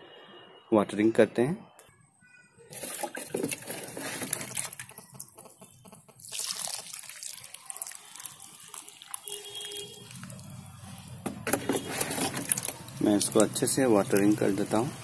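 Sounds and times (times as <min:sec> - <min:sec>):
water pouring onto soil: 0:02.7 - 0:05.3, 0:06.2 - 0:15.0.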